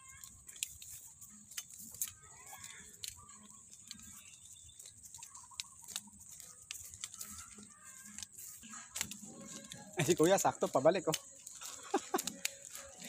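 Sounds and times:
faint animal calls: 0.0s - 10.1s
soft footsteps through grass: 0.0s - 13.0s.

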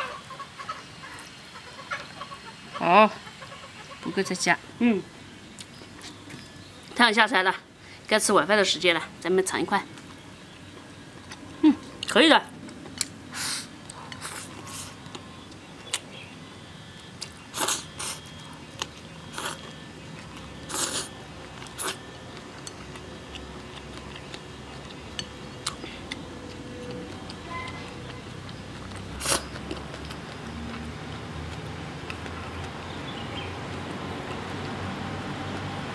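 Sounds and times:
wet chewing and lip-smacking: 17.1s - 34.8s.

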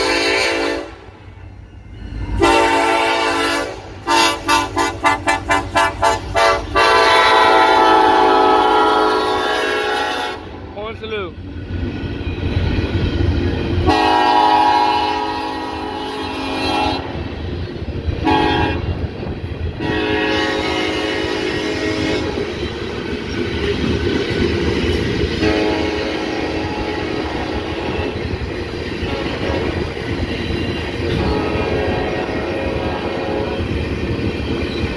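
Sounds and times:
locomotive air horn blasts: 0.0s - 1.1s, 2.4s - 10.6s, 13.8s - 17.2s, 18.2s - 19.0s, 19.8s - 22.4s, 25.4s - 28.2s, 29.0s - 29.9s, 31.0s - 33.7s
freight cars rumbling: 0.0s - 34.9s
wheels clacking over rail joints: 22.0s - 32.4s.

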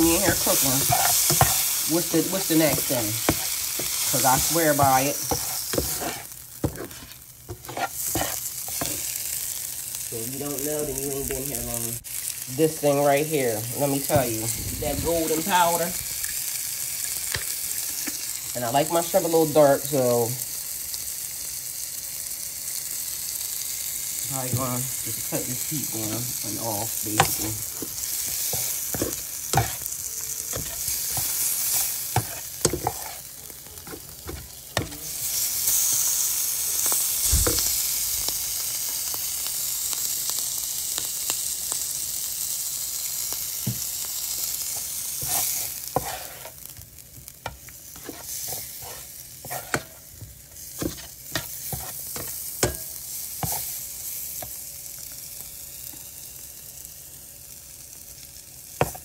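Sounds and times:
utensil knocking and scraping pan: 0.0s - 9.0s, 27.1s - 29.8s, 30.5s - 33.2s, 47.5s - 50.0s, 50.8s - 53.7s
shrimp sizzling in a pan: 0.0s - 59.0s.

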